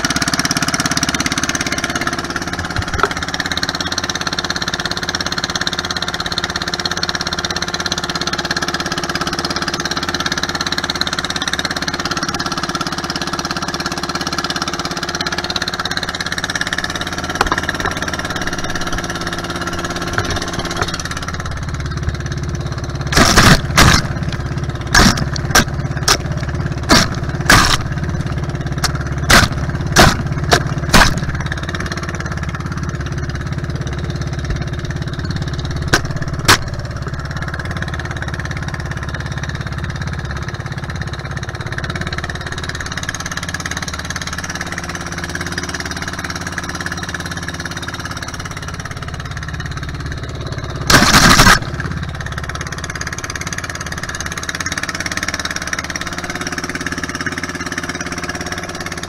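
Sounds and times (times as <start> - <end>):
boat engine running: 0.0 - 59.0
sharp knocks: 17.3 - 18.2, 23.1 - 28.0, 28.8 - 31.6, 35.9 - 36.8.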